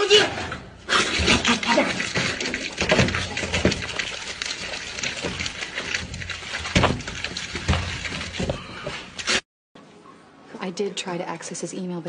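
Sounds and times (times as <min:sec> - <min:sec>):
slurping: 0:00.8 - 0:09.4.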